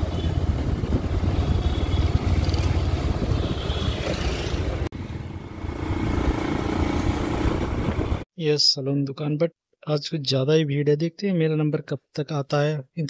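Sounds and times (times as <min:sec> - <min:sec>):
motorcycle engine: 0:00.0 - 0:08.2
road noise: 0:00.0 - 0:08.3
wind rumbling over microphone: 0:00.3 - 0:03.6, 0:05.6 - 0:08.2.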